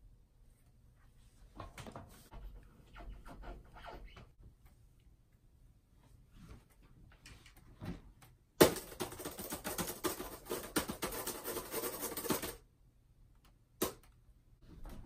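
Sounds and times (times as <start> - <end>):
fast typing on laptop keyboard: 8.6 - 12.6.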